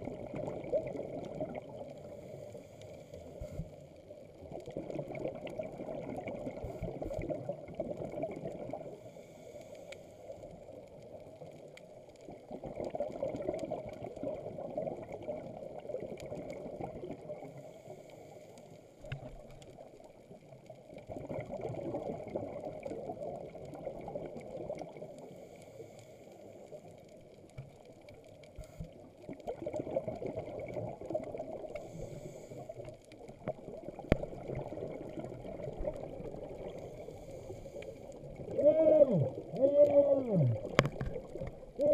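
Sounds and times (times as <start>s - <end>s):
diver breathing through regulator: 9.0s - 10.3s, 31.8s - 32.8s, 36.7s - 39.3s
bubbly exhalations: 38.3s - 41.9s.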